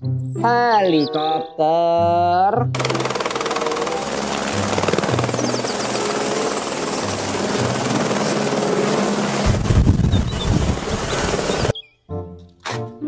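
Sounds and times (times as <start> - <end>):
music playing: 0.0 - 9.4
helicopter rotor chopping: 2.7 - 11.7.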